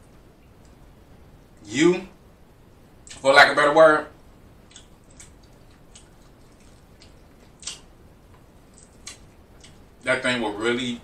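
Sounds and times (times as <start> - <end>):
person eating wet smacks: 4.7 - 9.9.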